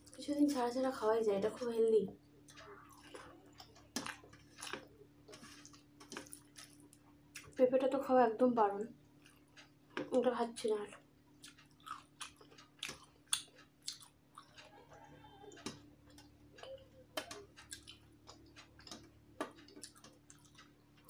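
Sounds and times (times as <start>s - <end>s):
person chewing: 2.4s - 7.6s, 9.1s - 10.1s, 11.3s - 21.0s.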